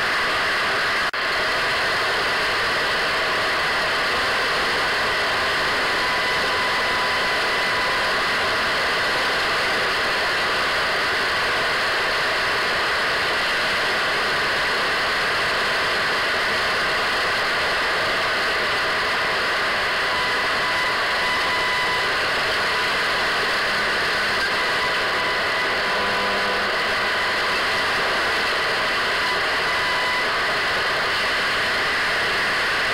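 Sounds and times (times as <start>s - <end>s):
radio static hiss: 13.2s - 32.9s.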